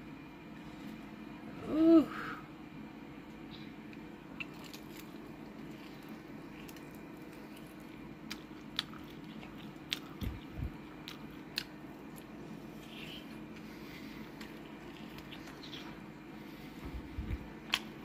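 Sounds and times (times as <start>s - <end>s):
low hum: 0.0s - 18.0s
crackling chicken skin: 3.9s - 16.1s.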